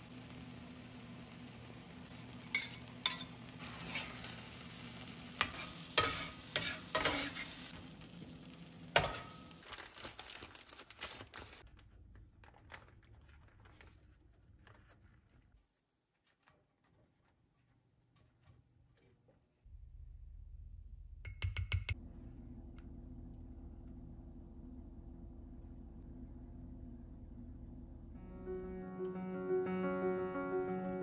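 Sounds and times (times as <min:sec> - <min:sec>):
eggs sizzling in a frying pan: 0:00.0 - 0:11.7
utensil scraping a pan: 0:02.4 - 0:04.5, 0:05.4 - 0:07.7
plastic bag crinkling: 0:09.3 - 0:15.6.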